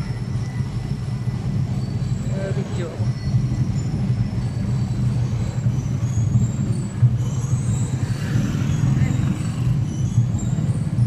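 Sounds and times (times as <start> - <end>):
motorcycle engines droning: 0.0 - 11.0.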